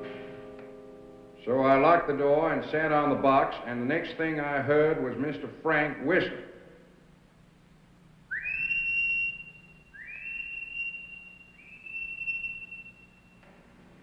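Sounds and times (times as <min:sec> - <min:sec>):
man whistling signal: 0:08.3 - 0:13.5.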